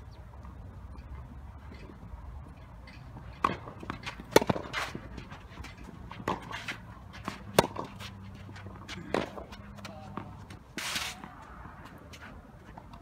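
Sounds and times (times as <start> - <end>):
tennis ball bouncing: 1.7 - 13.0
racket striking tennis ball: 2.8 - 11.7.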